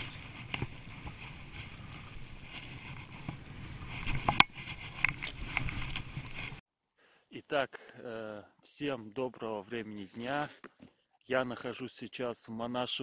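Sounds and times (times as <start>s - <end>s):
skis running through snow: 0.0s - 6.6s.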